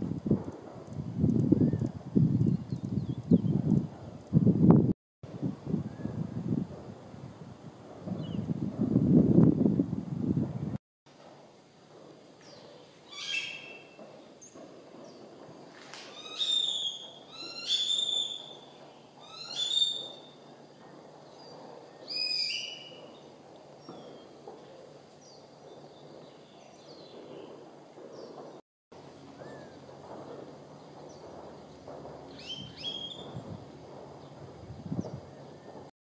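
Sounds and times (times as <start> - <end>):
bird calling descending notes: 13.0 - 14.0, 16.1 - 20.4, 32.3 - 33.4.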